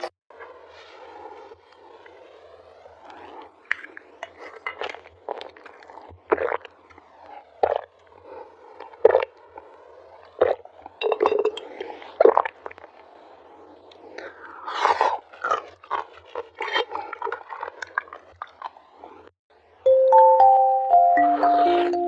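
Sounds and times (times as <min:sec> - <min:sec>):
slurping through a straw: 0:03.0 - 0:19.3.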